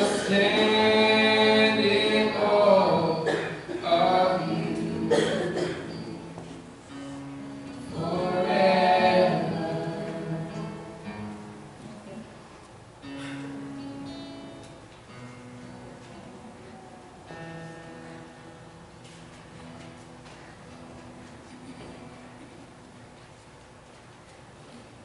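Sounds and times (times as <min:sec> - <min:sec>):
group of voices singing: 0:00.0 - 0:06.5, 0:07.8 - 0:11.1
acoustic guitar: 0:00.0 - 0:25.0.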